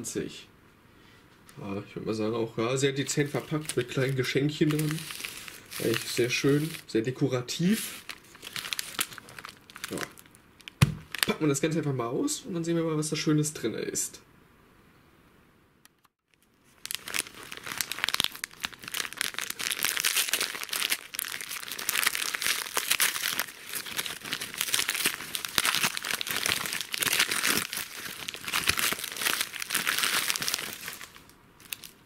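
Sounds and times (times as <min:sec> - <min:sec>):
wrapping paper tearing and crinkling: 0:03.1 - 0:06.9, 0:07.6 - 0:11.4, 0:16.3 - 0:32.0.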